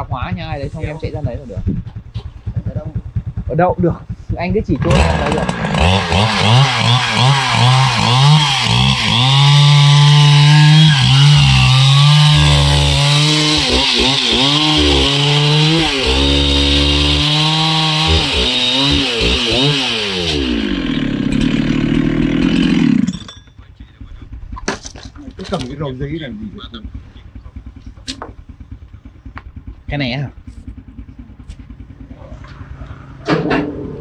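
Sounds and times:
chainsaw cutting a log: 4.8s - 23.3s.

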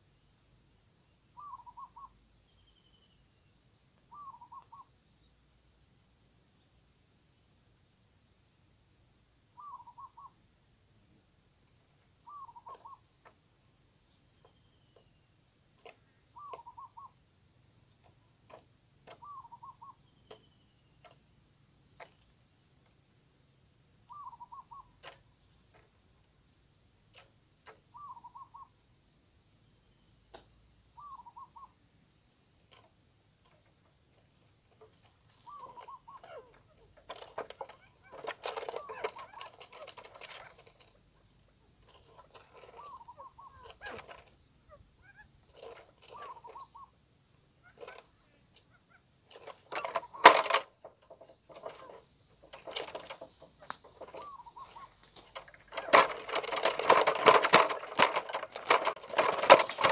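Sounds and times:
cricket chirring: 0.0s - 59.9s
quail call: 46.1s - 46.9s.

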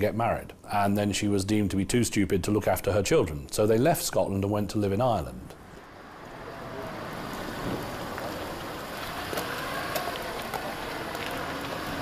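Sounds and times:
traffic noise: 4.8s - 12.0s.

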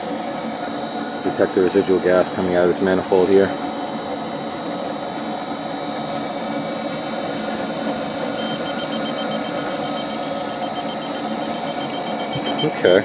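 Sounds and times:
furnace running: 0.0s - 13.0s
gas detector beeping rapidly: 8.4s - 13.0s.

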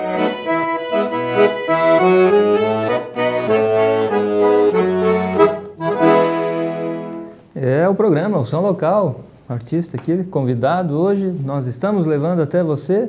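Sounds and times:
piano accordion playing: 0.0s - 7.5s.

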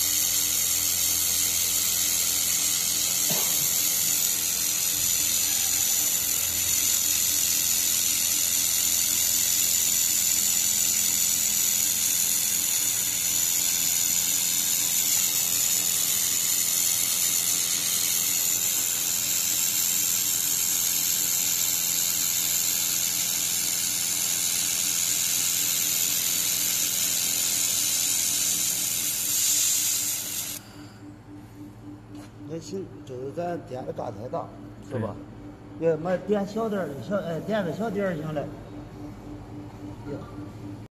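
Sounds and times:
laser welder hissing: 0.0s - 30.8s.

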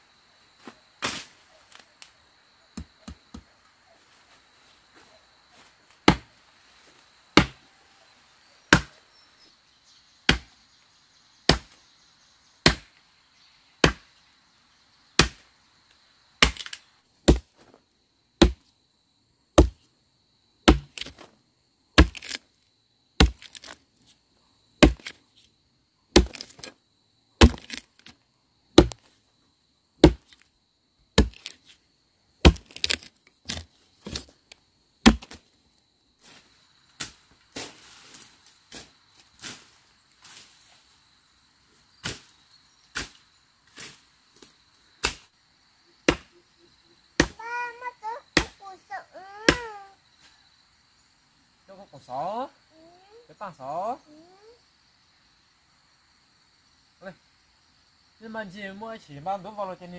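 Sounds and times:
machete chopping into wood: 6.0s - 6.3s, 7.4s - 7.6s, 8.7s - 9.0s, 10.3s - 10.5s, 11.5s - 11.8s, 12.6s - 13.0s, 13.8s - 14.1s, 15.2s - 15.5s, 16.4s - 17.6s, 18.4s - 18.7s, 19.6s - 19.9s, 20.6s - 21.3s, 22.0s - 22.4s, 23.2s - 23.8s, 24.8s - 25.2s, 26.1s - 26.7s, 27.4s - 28.2s, 28.8s - 29.1s, 30.0s - 30.4s, 31.2s - 31.7s, 32.4s - 34.3s, 35.0s - 35.5s, 42.0s - 42.3s, 42.9s - 43.2s, 45.0s - 45.3s, 46.0s - 46.3s, 47.2s - 47.4s, 48.4s - 48.6s, 49.5s - 49.7s.

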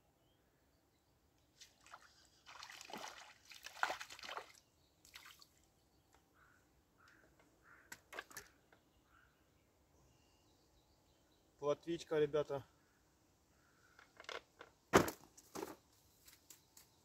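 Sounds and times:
water splashing and sloshing: 1.6s - 5.7s.

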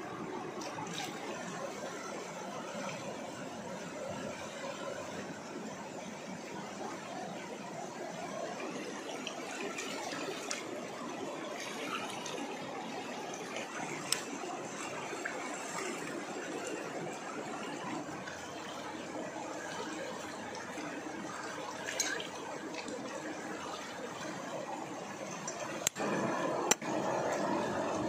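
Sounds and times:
river water rushing: 0.0s - 28.0s.

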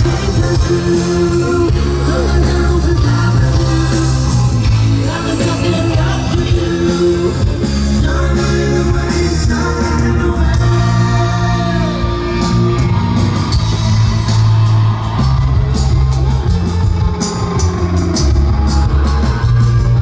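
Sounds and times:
person singing: 0.0s - 12.9s
guitar: 0.0s - 20.0s
live rock band playing: 0.0s - 20.0s.

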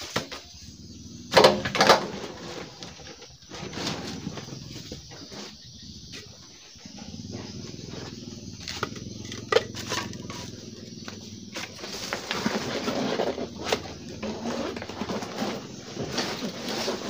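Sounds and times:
bamboo poles clattering: 1.3s - 5.5s, 8.6s - 17.0s
scraping and rustling: 1.3s - 17.0s.

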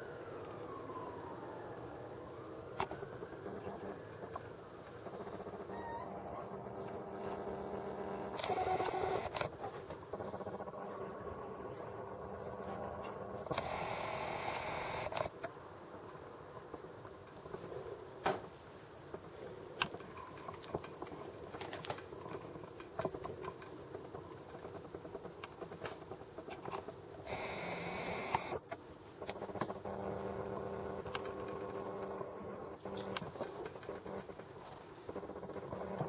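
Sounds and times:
zoom motor whirring hum: 5.5s - 9.5s, 12.1s - 15.3s, 27.3s - 28.6s
zoom motor whine: 6.6s - 9.5s, 13.4s - 15.3s, 27.3s - 28.6s
zoom motor clicks and ticks: 8.3s - 9.5s, 13.5s - 15.3s, 27.3s - 28.6s.

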